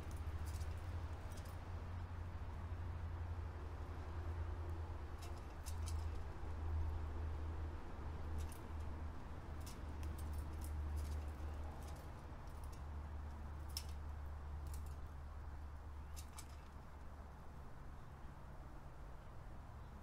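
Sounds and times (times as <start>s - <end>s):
birds pecking on metal feeder: 0.0s - 1.7s, 5.1s - 6.2s, 8.2s - 17.0s.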